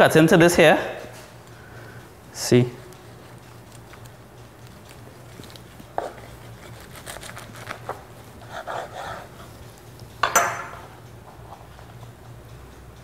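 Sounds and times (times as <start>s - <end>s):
knife crunching through sandwich: 3.3s - 9.9s.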